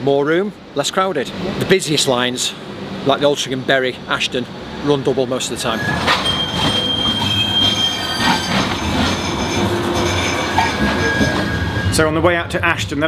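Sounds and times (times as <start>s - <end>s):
tram rumble: 0.6s - 13.0s
tram wheels squealing on rails: 5.4s - 12.3s.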